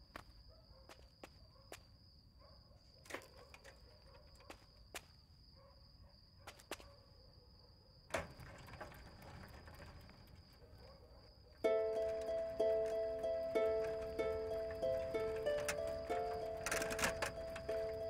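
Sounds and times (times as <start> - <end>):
crickets trilling: 0.0 - 18.0
bicycle clicks and knocks: 11.7 - 18.0.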